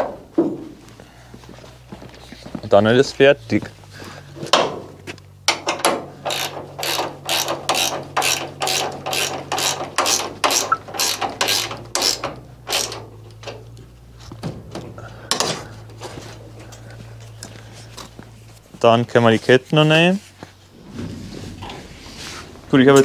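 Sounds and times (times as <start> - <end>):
ratchet wrench strokes: 6.2 - 13.0.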